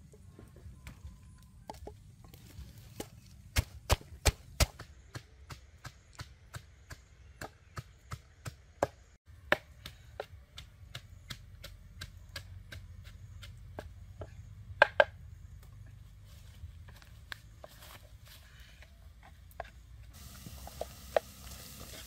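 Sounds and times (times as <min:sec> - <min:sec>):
wooden pestle pounding in mortar: 0:03.0 - 0:15.1.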